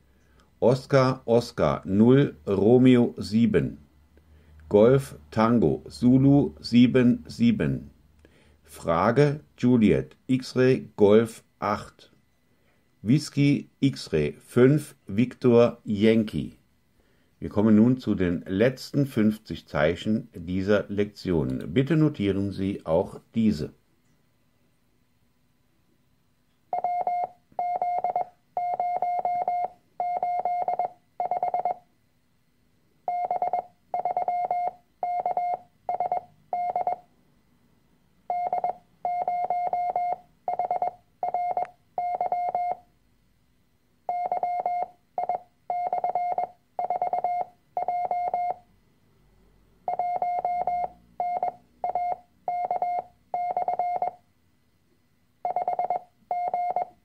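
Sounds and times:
morse code tones: 26.7 - 31.9, 33.1 - 37.1, 38.3 - 42.9, 44.1 - 48.7, 49.8 - 54.2, 55.4 - 57.0.

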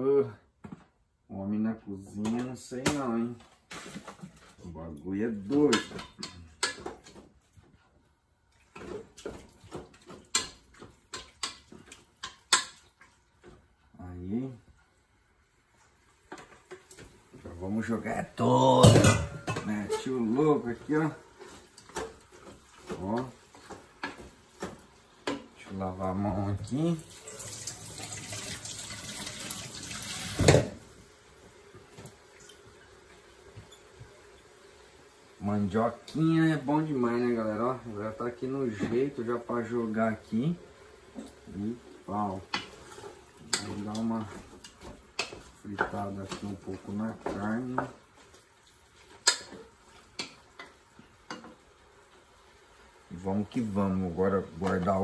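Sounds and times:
tap water running into sink: 26.6 - 30.9
wooden spoon scraping metal pot: 42.4 - 48.4.

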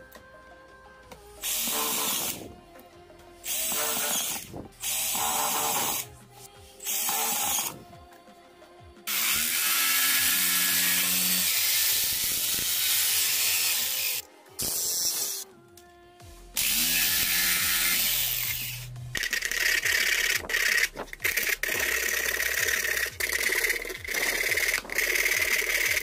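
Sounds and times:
power tool cutting plastic: 1.4 - 2.5, 3.4 - 7.9, 9.1 - 15.5, 16.6 - 26.0.

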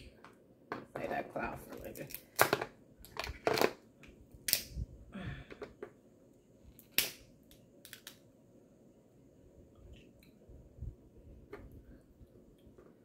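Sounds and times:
crab shells cracking: 4.4 - 4.8, 6.8 - 8.2.

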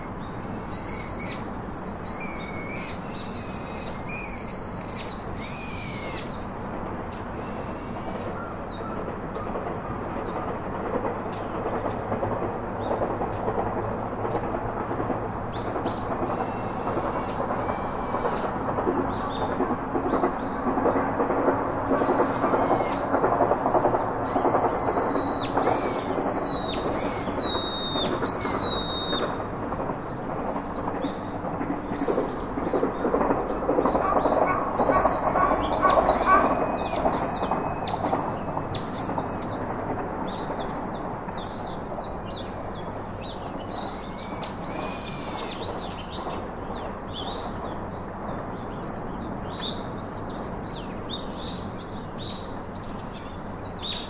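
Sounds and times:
steady rushing noise: 0.0 - 54.0
birds chirping: 30.5 - 54.0.

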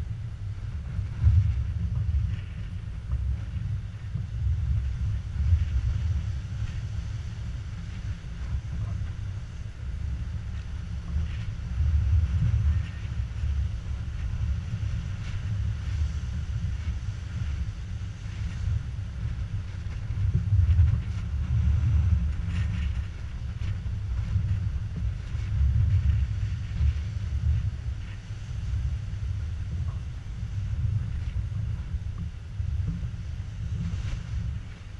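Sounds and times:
wind buffeting microphone: 0.0 - 34.9.

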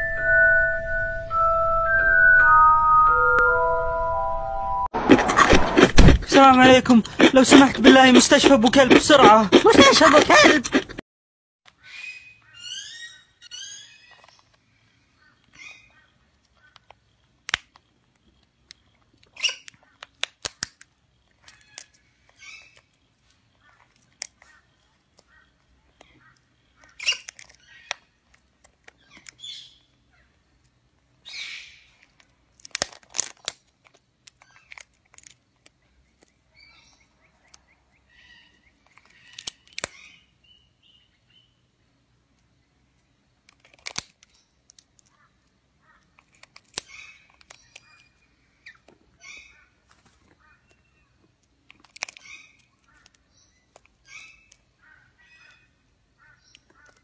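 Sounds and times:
scraping and crunching of shell: 5.0 - 11.0, 16.4 - 29.4, 31.9 - 36.4, 38.8 - 40.0, 43.0 - 45.2, 46.0 - 48.2, 51.3 - 54.7
bird cracking nut shell: 16.6 - 22.9, 26.8 - 29.4, 32.0 - 36.4, 38.8 - 40.1, 43.4 - 45.2, 46.0 - 48.1, 51.4 - 54.7.

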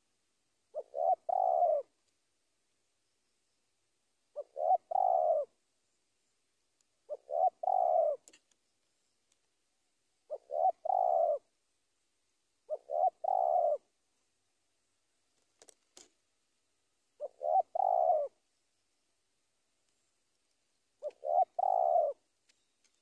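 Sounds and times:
dove cooing: 0.7 - 2.0, 4.3 - 5.6, 7.0 - 8.4, 10.3 - 11.5, 12.6 - 13.9, 17.2 - 18.4, 21.0 - 22.3.

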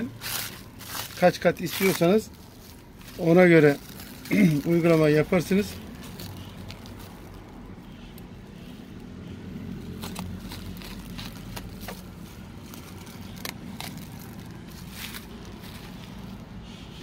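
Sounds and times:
mat crackling: 0.0 - 17.0.

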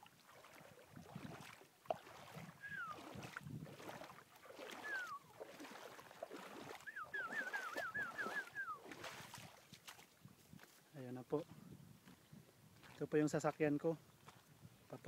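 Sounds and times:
footsteps on wet gravel: 0.0 - 13.6, 14.2 - 14.6
bird whistling: 2.6 - 3.0, 4.8 - 5.3, 6.8 - 8.9.

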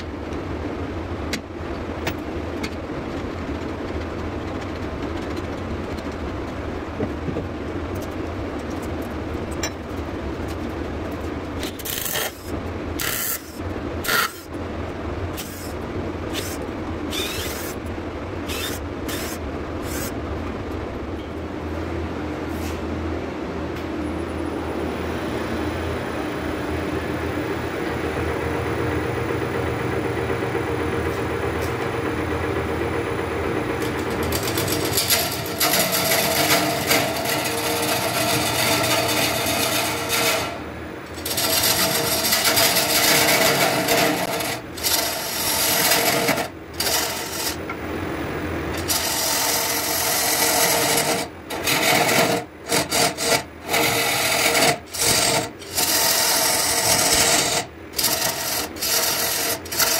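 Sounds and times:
wood lathe humming: 26.7 - 47.7, 48.8 - 59.9
sandpaper rasping on spinning wood: 34.2 - 40.6, 41.2 - 47.6, 48.8 - 59.9.

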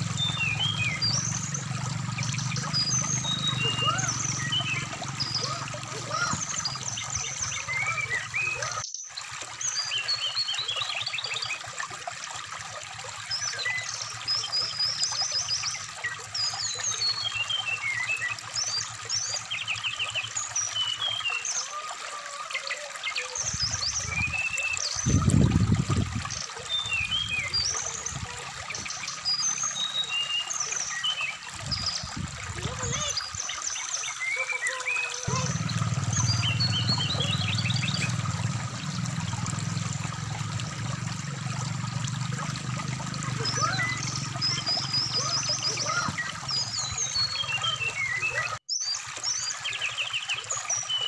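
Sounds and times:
trickling stream water: 0.0 - 51.0
low rumbles: 35.3 - 45.2.

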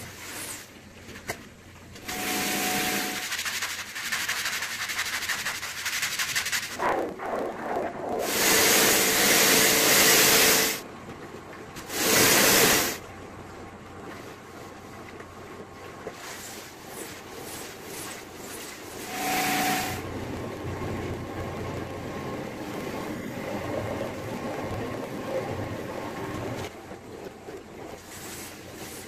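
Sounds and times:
brush scrubbing wet rug: 3.1 - 7.5, 16.0 - 19.1.

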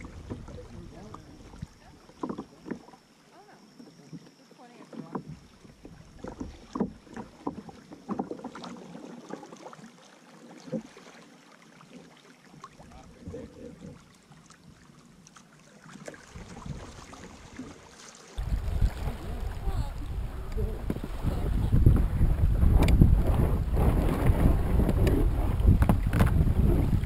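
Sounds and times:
wind rumble on microphone: 0.0 - 2.0, 18.4 - 27.0
paddle knocking hull: 0.0 - 3.0, 4.0 - 11.1, 15.8 - 27.0
paddle splashes: 0.0 - 27.0.

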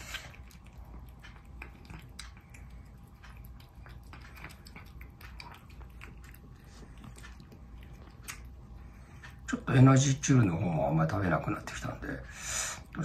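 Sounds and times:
cat chewing food: 0.0 - 13.0.

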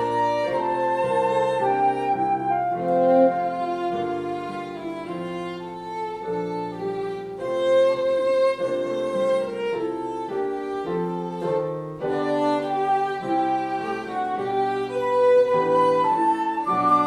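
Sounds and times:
lower accompaniment: 0.0 - 17.0
violin melody: 0.0 - 17.0.

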